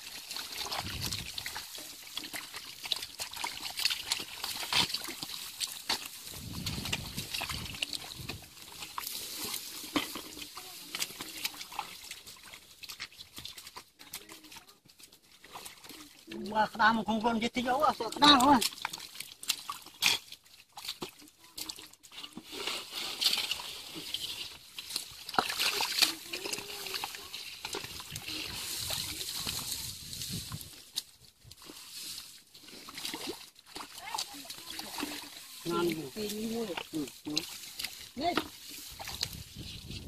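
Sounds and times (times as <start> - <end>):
mud sucking sounds: 0.0 - 14.6, 15.2 - 40.0
splashing in muddy water: 0.0 - 40.0
wet clicks and splats: 0.2 - 9.2, 17.9 - 22.0, 23.2 - 29.6.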